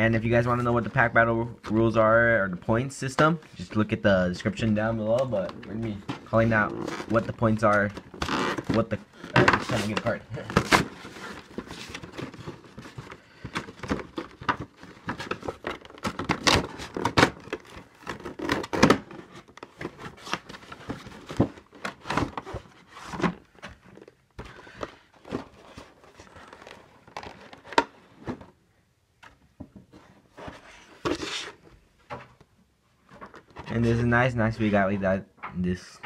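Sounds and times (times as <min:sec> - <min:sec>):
packaging rustling and crinkling: 0:05.2 - 0:28.6.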